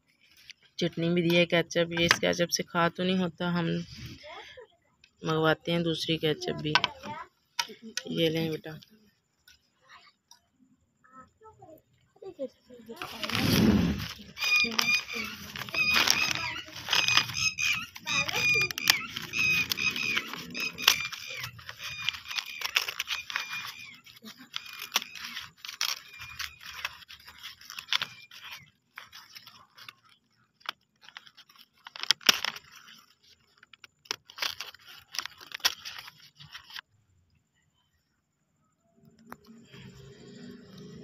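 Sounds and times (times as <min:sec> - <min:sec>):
paper wrapper crinkling and tearing: 0:00.0 - 0:01.1, 0:12.9 - 0:36.9.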